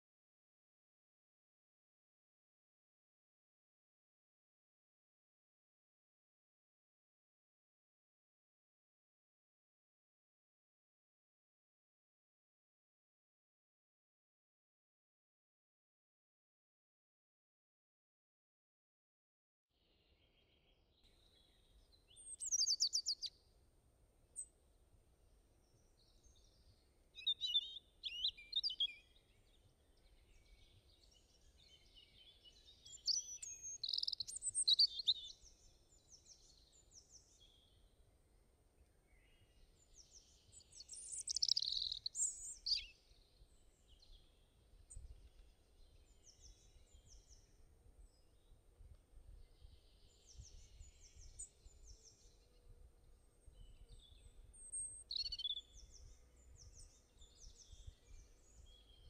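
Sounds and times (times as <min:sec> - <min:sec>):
small birds chirping: 0:19.8 - 0:23.4, 0:24.2 - 0:24.8, 0:25.6 - 0:37.9, 0:38.7 - 0:59.0.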